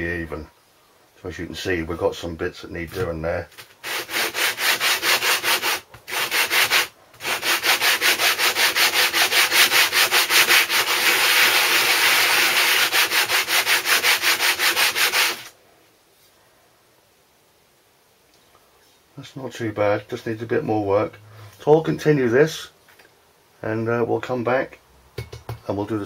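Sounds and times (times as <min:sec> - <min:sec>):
metal rubbed on sandpaper: 0:03.8 - 0:15.5.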